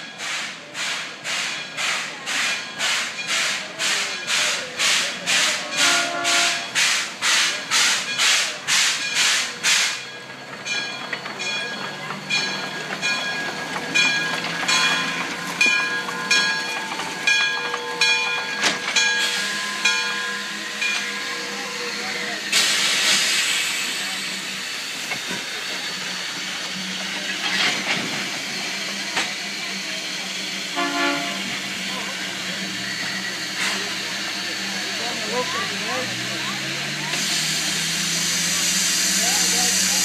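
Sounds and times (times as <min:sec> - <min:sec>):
steam locomotive chuffing: 0:00.0 - 0:40.0
locomotive gear clanking: 0:07.8 - 0:20.2.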